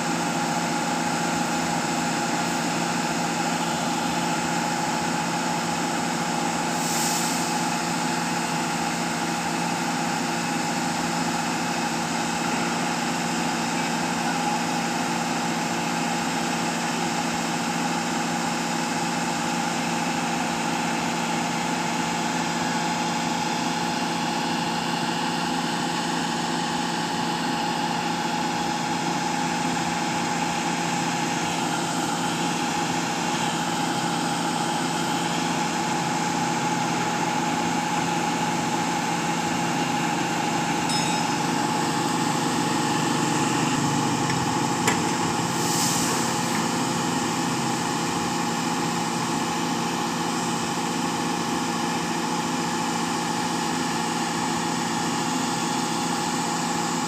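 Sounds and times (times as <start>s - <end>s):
diesel engine drone: 0.0s - 57.0s
constant high tone: 40.8s - 43.2s.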